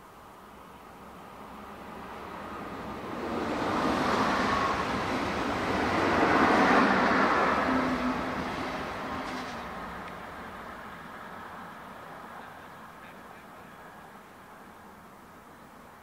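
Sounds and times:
vehicle passing by: 1.4 - 13.1.

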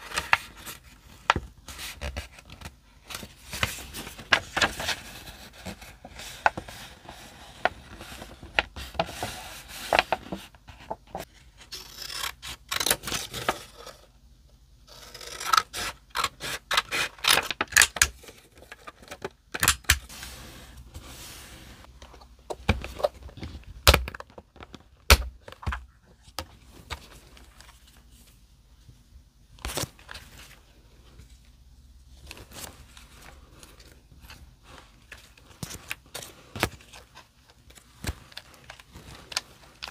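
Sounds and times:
paper scraping and rustling: 1.7 - 11.9.

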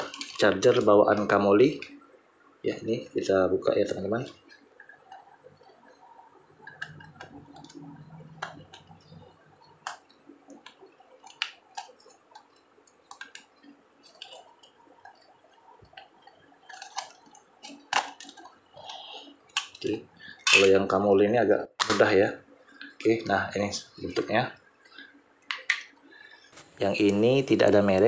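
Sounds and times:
plastic case clicking and cracking: 16.0 - 18.5.

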